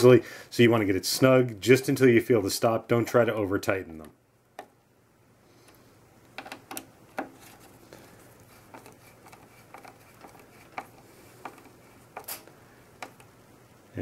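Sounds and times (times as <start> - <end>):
screwdriver clicking and scraping screws: 8.7 - 12.4.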